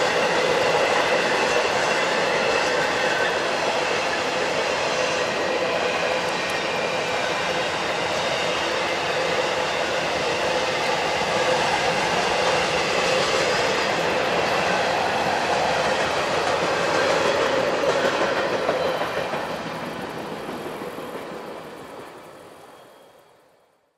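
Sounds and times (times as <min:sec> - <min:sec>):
wheels rattling on rails: 0:00.0 - 0:23.1
freight train rumbling over bridge: 0:00.0 - 0:23.4.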